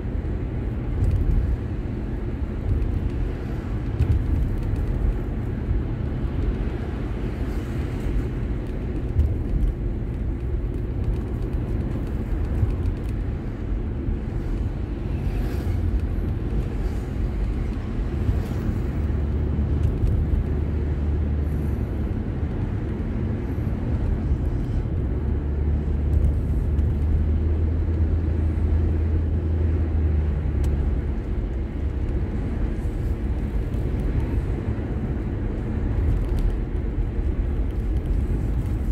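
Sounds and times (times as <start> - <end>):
car engine rumble: 0.0 - 38.9
tyres on road: 0.0 - 38.9.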